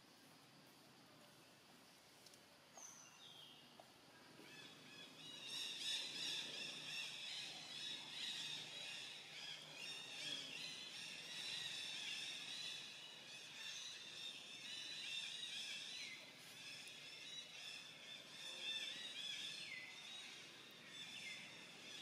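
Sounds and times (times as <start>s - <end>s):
birds chirping and trilling: 4.4s - 22.0s.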